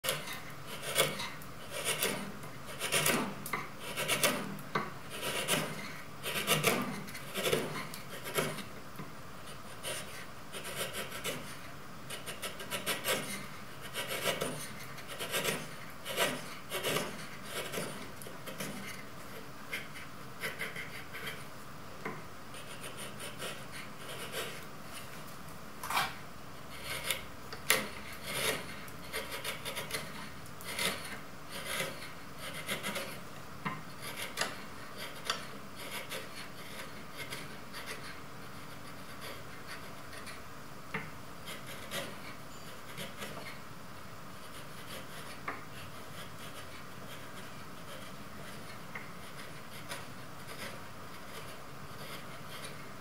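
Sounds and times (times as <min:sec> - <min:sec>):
chisel paring wood: 0:00.0 - 0:08.7, 0:12.2 - 0:18.9, 0:26.8 - 0:33.2.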